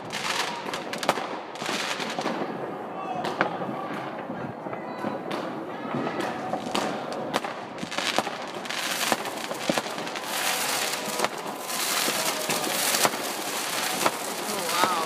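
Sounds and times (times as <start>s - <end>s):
fireworks cracking and popping: 0.0s - 15.0s
continuous crackle: 3.4s - 15.0s.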